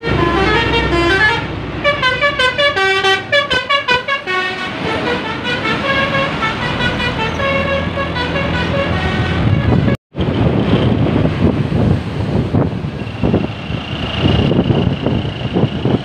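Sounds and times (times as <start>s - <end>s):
air horns playing a melody: 0.0s - 10.0s
road traffic: 0.0s - 16.0s.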